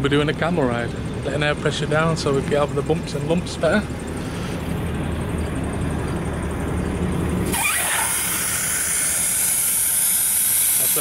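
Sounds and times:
vehicle engine idling: 0.0 - 11.0
air hissing from tyre: 4.1 - 4.9, 7.4 - 11.0.

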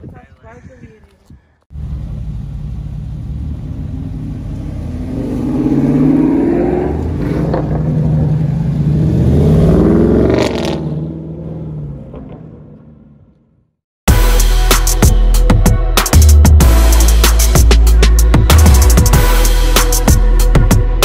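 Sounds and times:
car engine idling and revving: 1.7 - 13.7.

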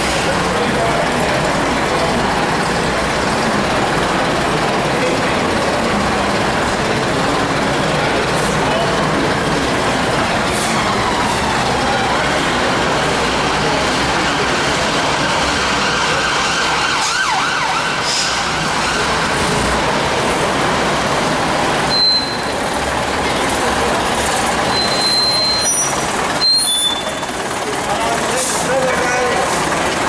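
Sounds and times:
bus diesel engine drone: 0.0 - 30.0
high-pitched squeals: 21.8 - 22.8, 24.5 - 27.7.

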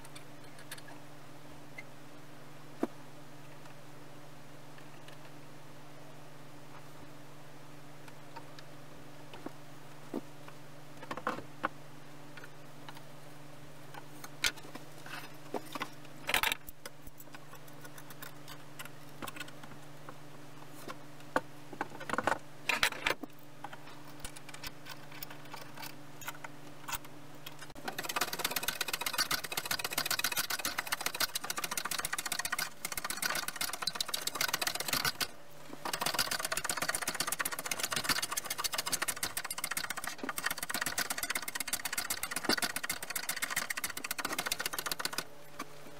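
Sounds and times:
low steady hum: 0.0 - 45.9
metal clamps clicking and knocking: 22.0 - 45.3.

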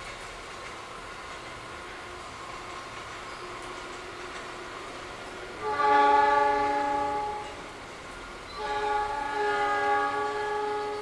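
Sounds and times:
locomotive horn blasts: 5.6 - 7.6, 8.6 - 11.0.

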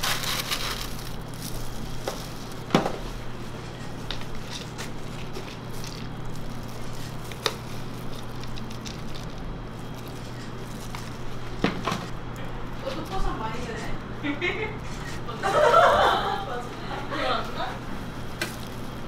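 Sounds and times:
cereal crackling: 0.0 - 2.8, 3.4 - 11.6, 18.1 - 19.0.

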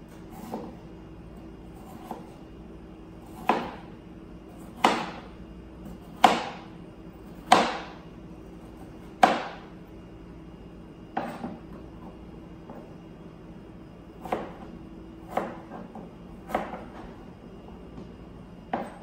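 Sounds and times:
knife chopping on plastic board: 0.4 - 0.8, 1.8 - 2.4, 3.2 - 3.9, 4.6 - 5.3, 5.9 - 6.7, 7.3 - 8.0, 8.8 - 9.7, 14.2 - 14.7, 15.3 - 17.1, 18.7 - 19.0.

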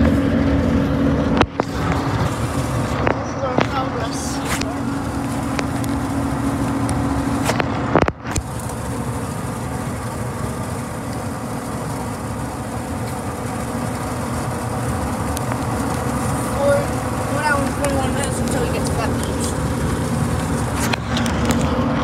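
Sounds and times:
road and engine noise in cabin: 0.0 - 22.0.

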